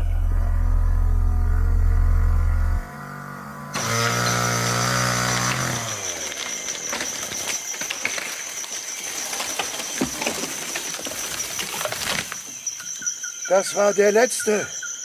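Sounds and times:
high insect whine: 0:00.0 - 0:15.0
chainsaw running: 0:03.8 - 0:09.2
cracks and rustles: 0:05.2 - 0:12.7.

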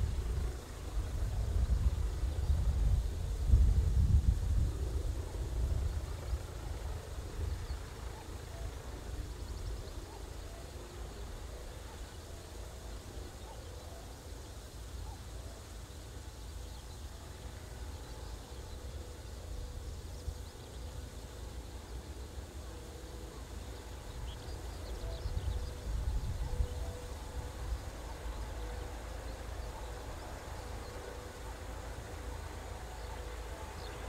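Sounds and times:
wind rumbling on microphone: 0:00.0 - 0:10.2, 0:23.8 - 0:28.8
faint outdoor background noise: 0:00.0 - 0:34.0.

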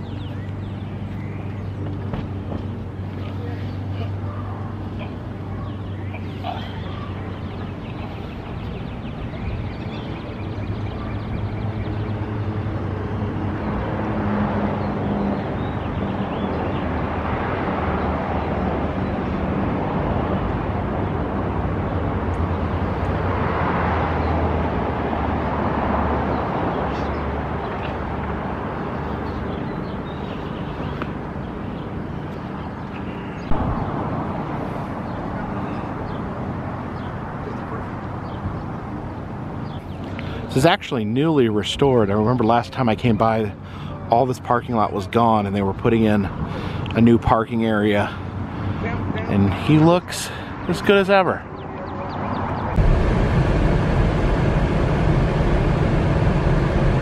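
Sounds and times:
low engine hum: 0:00.0 - 0:44.7, 0:51.4 - 0:57.0
cars passing: 0:00.0 - 0:57.0.

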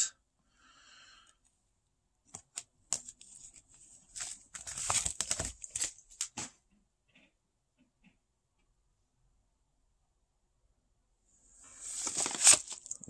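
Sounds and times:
crinkling rustles and taps: 0:02.3 - 0:08.7.

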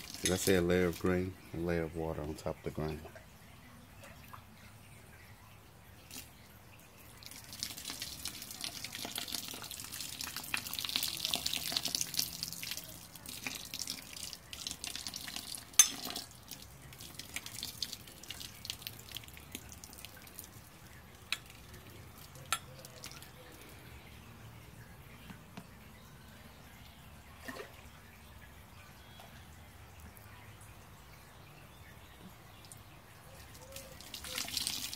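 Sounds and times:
water pouring and splashing: 0:00.0 - 0:34.9.

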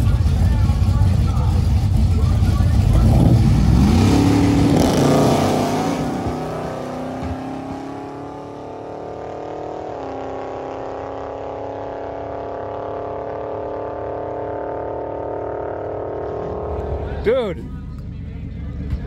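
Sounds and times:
car engine accelerating: 0:00.0 - 0:19.0
truck engine at high revs: 0:00.0 - 0:19.0
tires spinning: 0:01.7 - 0:12.4.

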